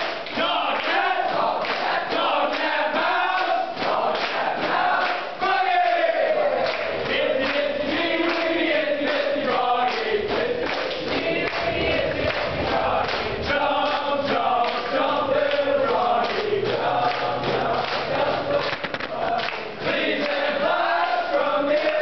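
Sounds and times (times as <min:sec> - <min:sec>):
group of boys singing: 0:00.0 - 0:22.0
percussive beat: 0:07.9 - 0:20.1.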